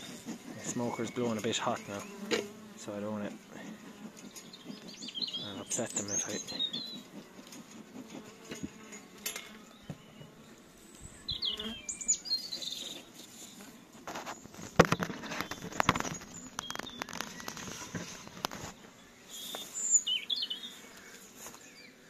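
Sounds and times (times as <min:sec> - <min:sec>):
bird chirps: 0:00.0 - 0:02.3, 0:04.3 - 0:07.1, 0:09.6 - 0:13.6, 0:14.4 - 0:22.0
sharp knocks and rustles: 0:00.0 - 0:02.6, 0:03.2 - 0:10.5, 0:12.4 - 0:19.8
honeybees buzzing: 0:00.0 - 0:22.0.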